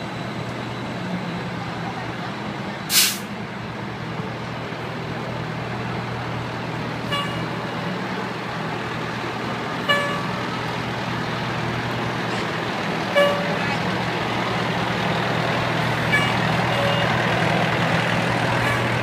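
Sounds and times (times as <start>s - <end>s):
diesel engine running: 0.0s - 19.0s
truck horn toots: 7.0s - 7.6s, 9.8s - 10.5s, 13.1s - 13.8s, 16.0s - 17.2s, 18.6s - 19.0s.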